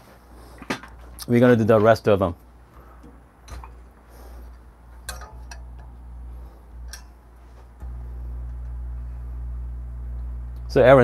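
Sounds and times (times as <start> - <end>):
electric appliance humming: 3.4 - 11.0.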